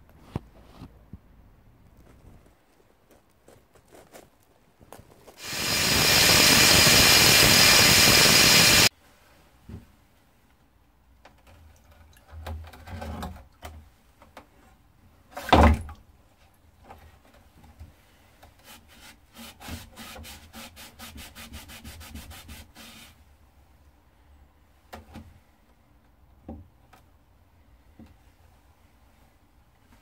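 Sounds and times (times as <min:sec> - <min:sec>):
rag scrubbing steel blade: 0:05.4 - 0:08.9.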